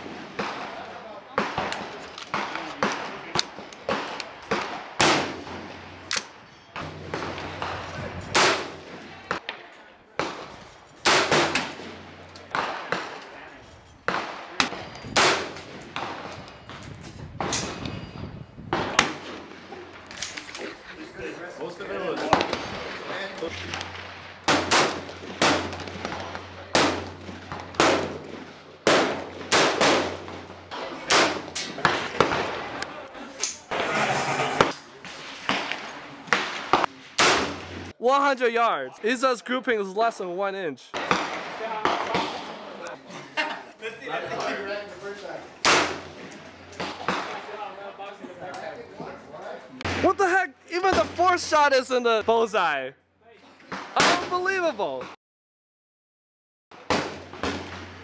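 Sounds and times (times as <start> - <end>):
echoing gunshots: 0.0 - 9.5, 10.2 - 13.3, 14.0 - 16.8, 18.7 - 19.8, 22.2 - 32.8, 34.6 - 37.9, 40.9 - 42.7, 45.6 - 47.7, 56.8 - 58.0
rifle shots: 0.0 - 9.5, 10.2 - 13.3, 14.1 - 16.7, 22.3 - 32.8, 35.4 - 37.9, 40.9 - 42.6, 45.6 - 47.6, 56.9 - 58.0.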